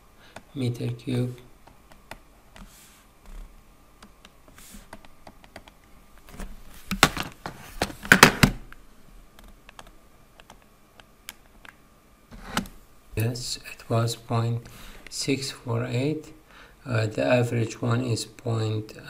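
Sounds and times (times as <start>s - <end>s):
keyboard typing: 4.0s - 5.9s, 9.4s - 11.8s.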